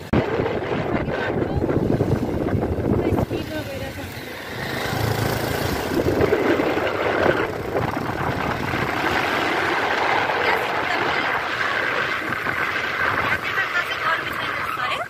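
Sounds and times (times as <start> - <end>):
vehicle road noise: 0.0 - 15.0
wind rushing: 0.0 - 15.0.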